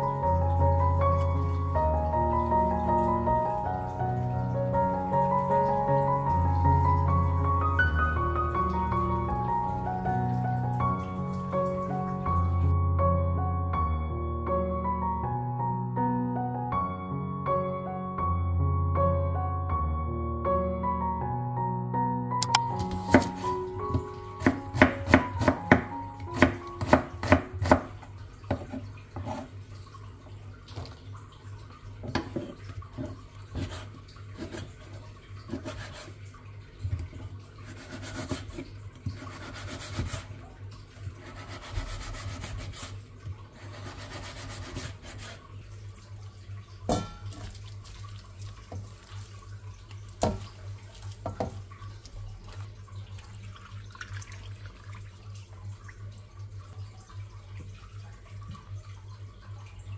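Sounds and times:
single clicks: 22.4 - 22.7.

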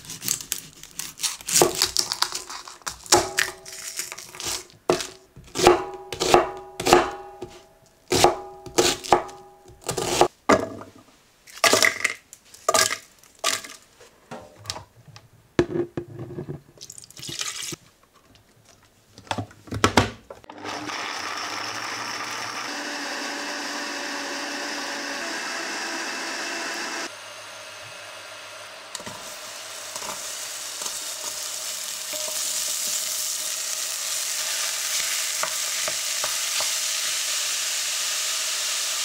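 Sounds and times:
blender grinding: 20.5 - 39.0.

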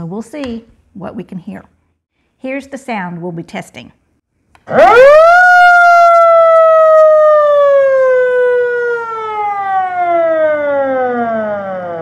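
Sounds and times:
siren wail from speaker: 4.7 - 12.0.

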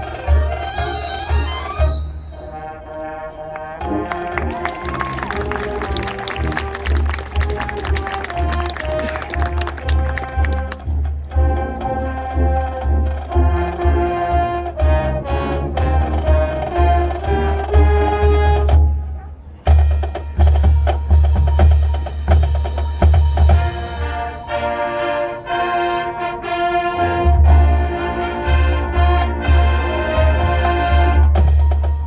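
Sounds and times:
marching band drums: 3.7 - 25.0, 27.0 - 32.0
mallet keyboards: 3.8 - 13.8.

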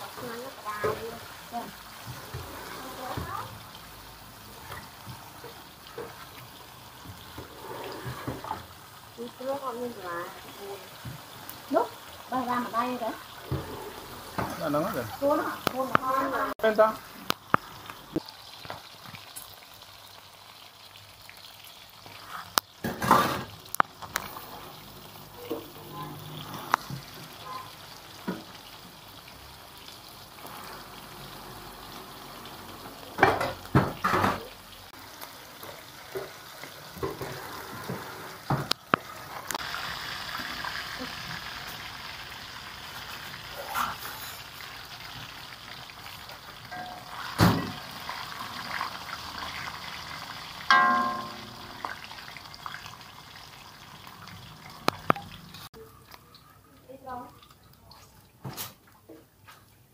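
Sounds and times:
food sizzling in hot oil: 0.0 - 59.3.

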